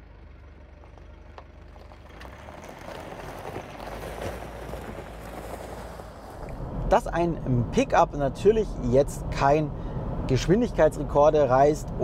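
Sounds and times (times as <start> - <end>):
diesel engine running: 0.0 - 12.0
tyres crunching over gravel: 0.4 - 6.6.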